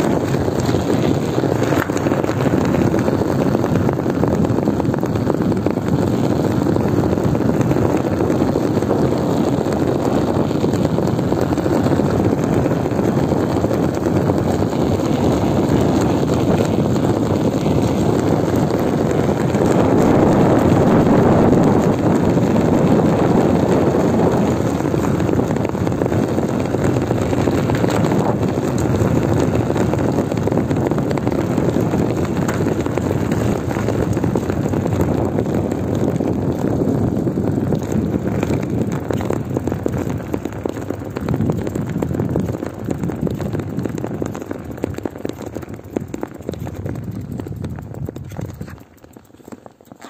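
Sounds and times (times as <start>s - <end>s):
flat tyre rumbling on pavement: 0.0s - 50.0s
wind on microphone: 0.0s - 50.0s.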